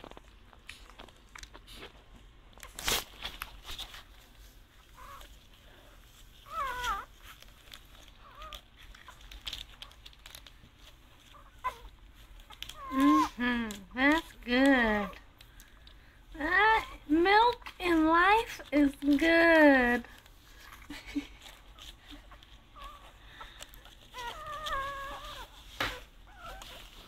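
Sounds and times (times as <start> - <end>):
puppies shuffling clicks and rustles: 0.0 - 27.0
puppies squeaking: 6.4 - 7.2, 22.2 - 27.0.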